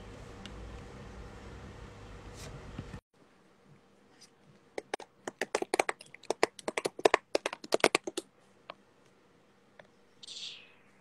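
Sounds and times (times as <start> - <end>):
keyboard typing: 4.8 - 8.2.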